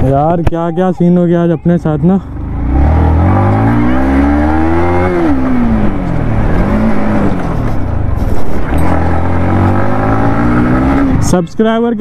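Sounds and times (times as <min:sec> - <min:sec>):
motorcycle engine being ridden: 0:00.0 - 0:12.0
rough rushing noise: 0:02.7 - 0:11.4.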